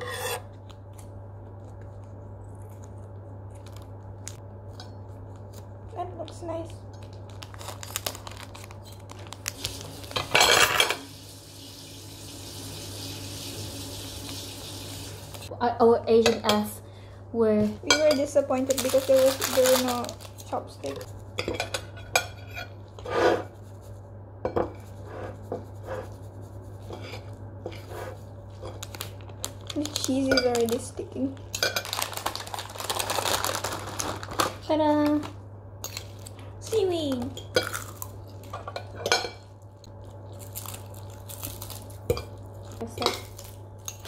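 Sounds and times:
forks scraping ceramic plates: 0:00.0 - 0:00.5
forks scraping on ceramic plates: 0:00.0 - 0:00.5, 0:26.8 - 0:28.2
steady low hum: 0:00.0 - 0:44.0
cheese shaken from paper packet: 0:18.5 - 0:20.8, 0:28.9 - 0:30.9, 0:31.9 - 0:34.7.

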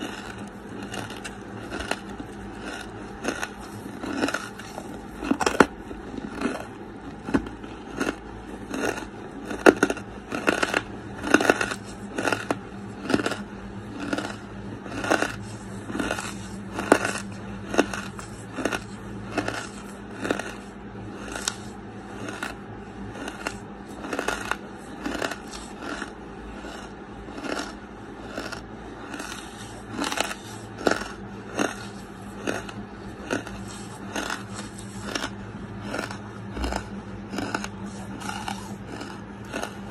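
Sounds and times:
chewing charcoal crunches: 0:00.0 - 0:39.9
faint steady hum: 0:00.0 - 0:39.9.

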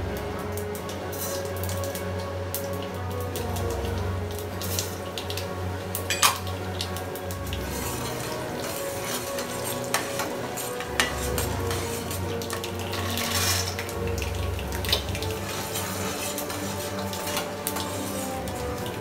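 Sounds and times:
seeds sizzling in hot oil: 0:00.0 - 0:19.0
metal spatula scraping pan: 0:07.6 - 0:14.0, 0:15.2 - 0:19.0.

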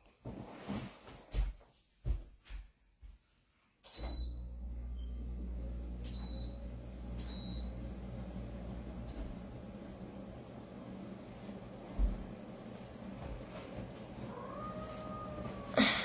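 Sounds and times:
appliance humming: 0:04.0 - 0:16.0.

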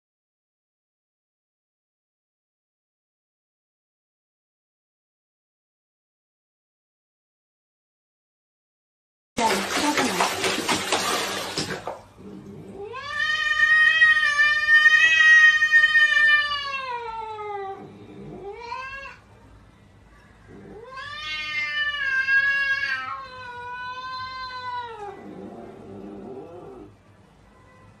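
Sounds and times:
cat yowling: 0:12.8 - 0:19.3, 0:20.6 - 0:25.3.

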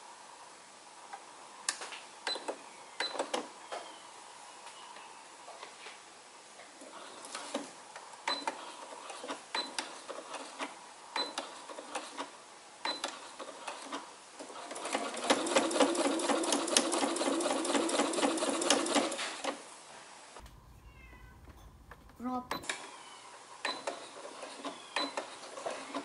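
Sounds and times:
sewing machine stitching: 0:12.9 - 0:19.6.

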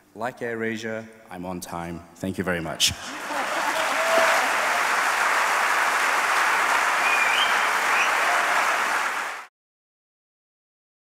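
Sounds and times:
large audience applauding: 0:02.9 - 0:09.5.

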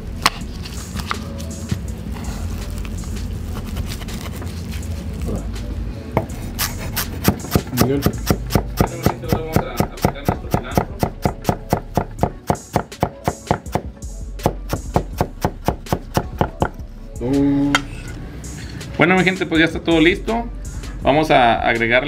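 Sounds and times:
background music: 0:00.0 - 0:22.0
knife chopping on wooden board: 0:06.2 - 0:16.8.

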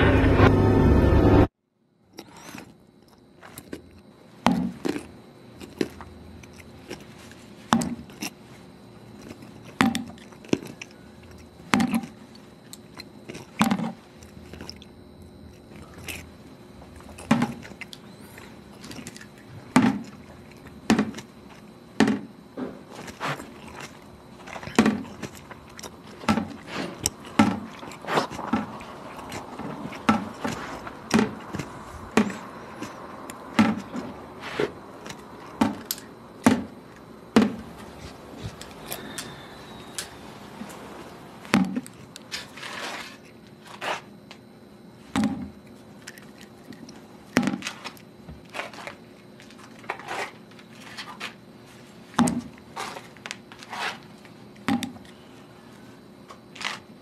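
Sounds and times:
faint steady hum: 0:00.0 - 0:57.0
objects knocking and clicking: 0:22.0 - 0:34.2, 0:35.0 - 0:36.8.

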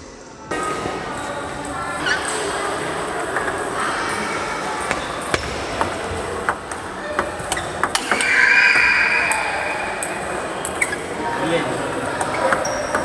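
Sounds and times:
steady high-pitched tone: 0:08.0 - 0:11.2.

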